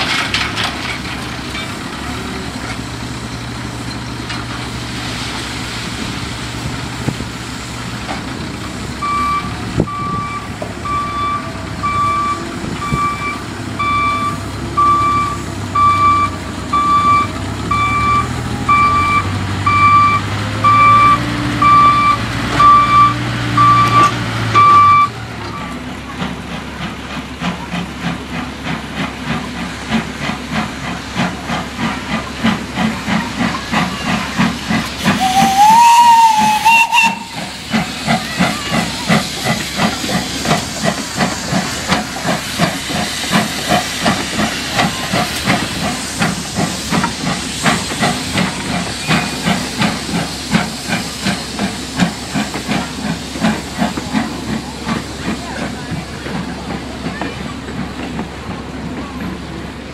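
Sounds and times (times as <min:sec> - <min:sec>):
diesel engine running: 0:00.0 - 0:59.9
steam locomotive chuffing: 0:00.0 - 0:59.9
reversing beeper: 0:09.0 - 0:25.8
steam whistle blast: 0:35.1 - 0:37.6.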